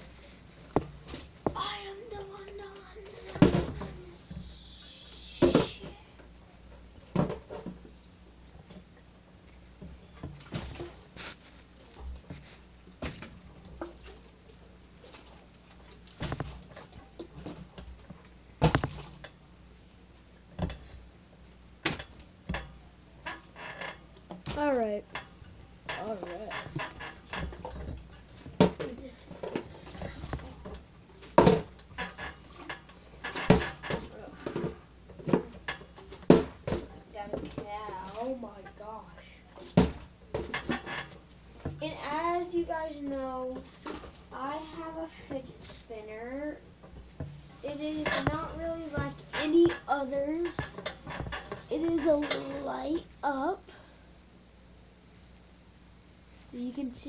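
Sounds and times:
plastic bottle knocks and thuds: 0:18.6 - 0:19.1, 0:36.2 - 0:36.9, 0:39.8 - 0:40.5.

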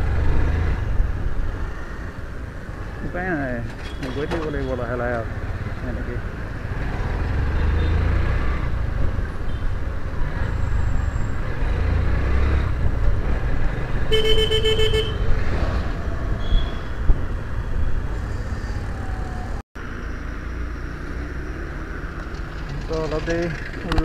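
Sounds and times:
wind: 0:00.0 - 0:24.0
vehicle horn honking: 0:14.1 - 0:15.3
motorcycle engine rumble: 0:21.5 - 0:24.0.

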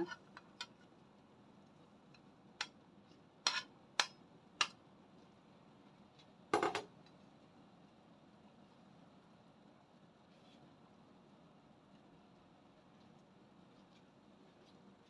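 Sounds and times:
pot boiling hiss: 0:00.0 - 0:15.0
metal spoon clinking on plate: 0:03.5 - 0:04.2.

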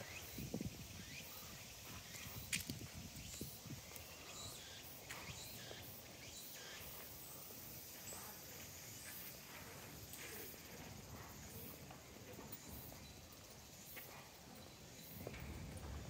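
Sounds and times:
faint outdoor ambience: 0:00.0 - 0:16.0
footsteps on stone paving: 0:01.9 - 0:04.4.

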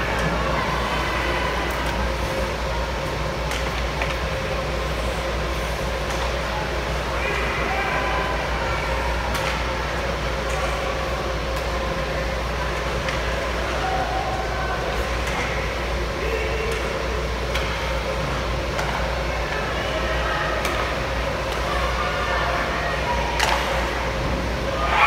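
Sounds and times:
hockey sticks clacking on puck: 0:23.4 - 0:23.7.

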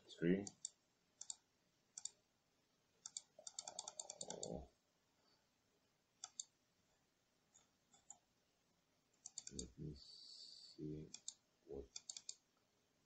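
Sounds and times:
mouse clicks: 0:00.5 - 0:02.2, 0:03.0 - 0:04.6, 0:06.2 - 0:06.6, 0:09.2 - 0:09.7, 0:11.1 - 0:12.4.

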